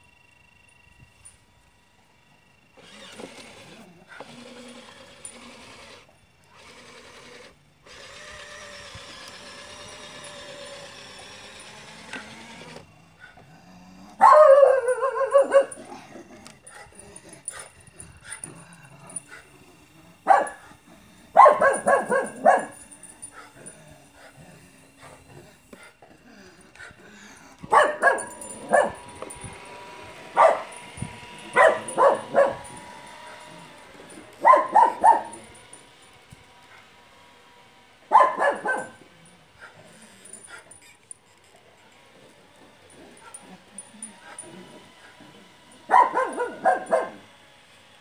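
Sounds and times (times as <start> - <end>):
dog barking and whining: 14.0 - 35.8, 38.0 - 47.3.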